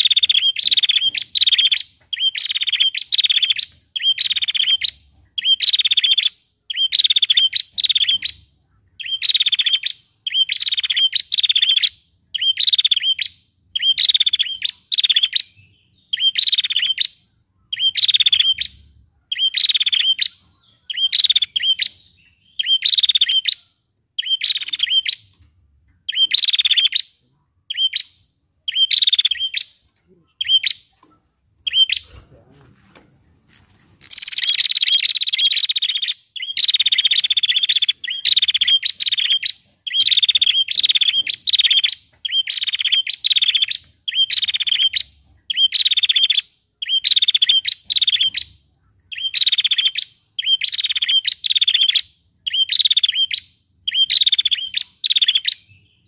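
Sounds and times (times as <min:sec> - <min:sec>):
bird trilling calls: 0:00.0 - 0:25.4, 0:26.0 - 0:32.5, 0:34.0 - 0:56.0.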